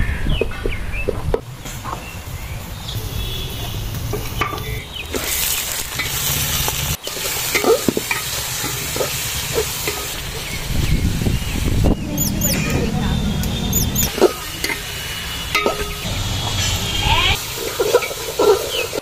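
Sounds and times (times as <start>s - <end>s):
chicken sizzling in hot oil: 5.0s - 11.9s, 14.1s - 19.0s.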